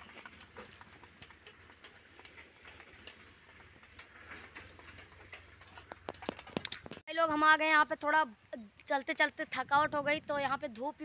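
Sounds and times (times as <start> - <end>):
footsteps on brick path: 0.0 - 7.1.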